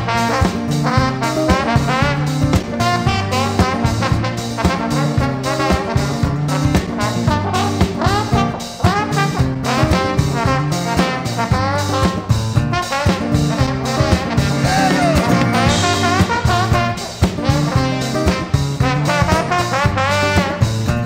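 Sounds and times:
trombone solo with sliding notes: 0.0 - 21.0.

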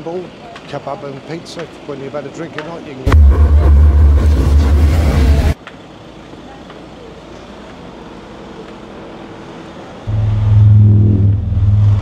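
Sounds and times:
road traffic noise: 0.0 - 12.0
loud low rumble with hiss: 3.0 - 5.6, 10.1 - 12.0.

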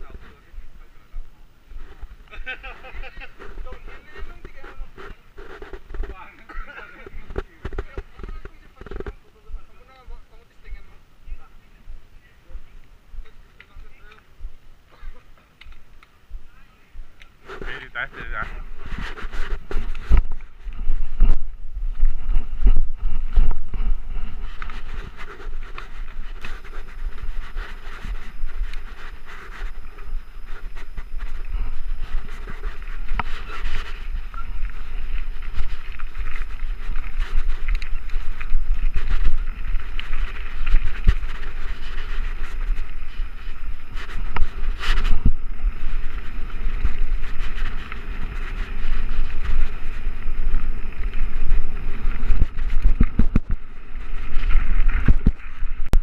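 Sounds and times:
bike rattling over bumps: 1.9 - 10.4, 17.6 - 56.0
wind buffeting microphone: 18.1 - 56.0.

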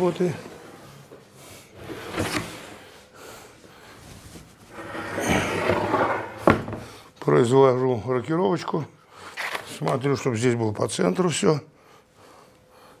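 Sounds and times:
wooden panel sliding: 1.7 - 2.9, 4.7 - 6.9.

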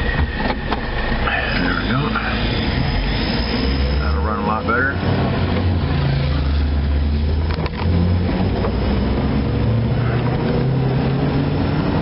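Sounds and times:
tyres hissing on wet road: 1.2 - 4.2.

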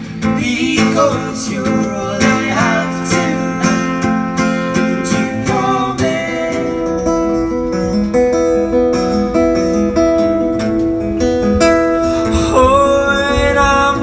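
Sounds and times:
acoustic guitar melody: 0.0 - 14.0
person singing: 0.2 - 7.4, 12.0 - 14.0.

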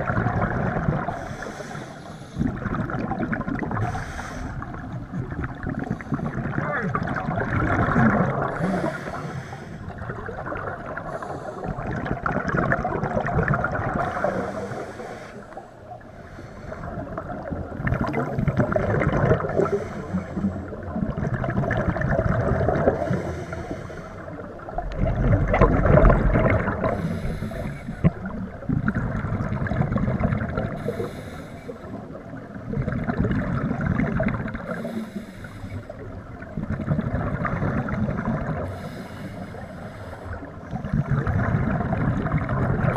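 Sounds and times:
bubbling exhaled air: 0.0 - 15.6, 16.3 - 42.9
water noise: 0.0 - 42.9
regulator breathing underwater: 1.0 - 2.7, 3.7 - 4.8, 8.2 - 10.1, 10.9 - 12.0, 13.9 - 17.4, 19.4 - 20.8, 22.7 - 24.7, 26.1 - 28.3, 30.6 - 32.2, 34.6 - 36.1, 38.6 - 40.8.

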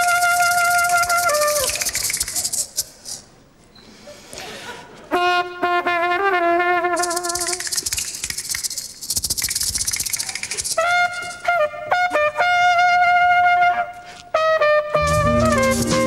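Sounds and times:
solo trumpet melody: 0.0 - 1.8, 5.1 - 7.4, 10.8 - 16.0
maracas rattling: 0.0 - 3.3, 6.8 - 11.7, 15.0 - 16.0.

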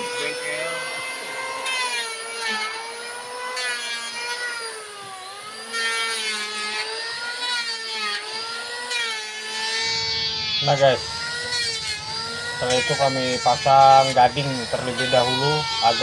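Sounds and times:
power tool motor whining: 0.0 - 16.0.

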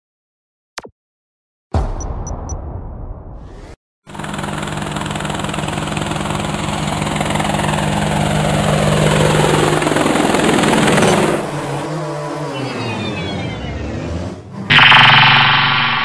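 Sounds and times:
drone rotors buzzing: 4.1 - 16.0.

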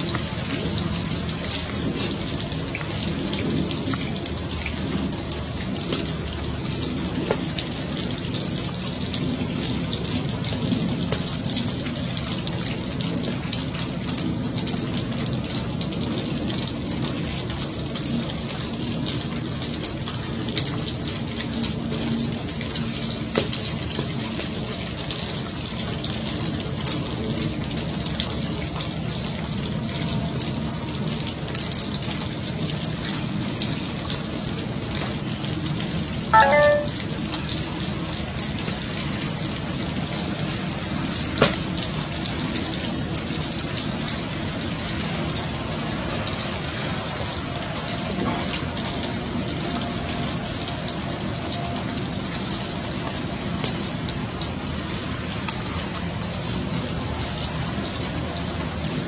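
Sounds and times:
rain pattering on leaves: 0.0 - 59.0
short pitched call: 36.4 - 37.0.

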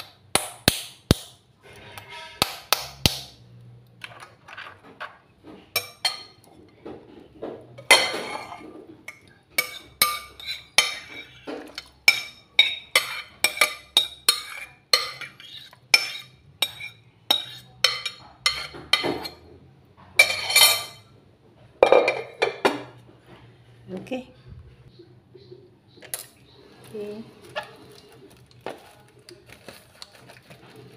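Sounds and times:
food scraped into pot: 12.6 - 19.4.

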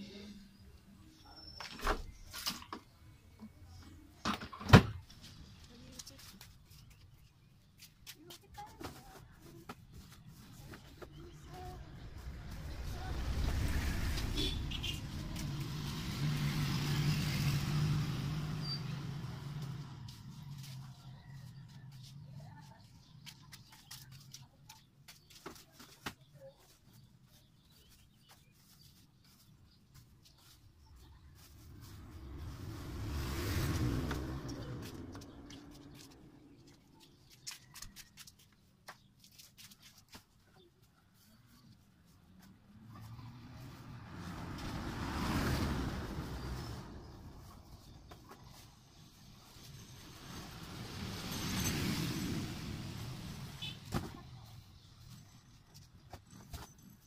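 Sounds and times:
vehicle engine passing: 11.2 - 21.9, 30.8 - 37.0, 42.6 - 55.2.

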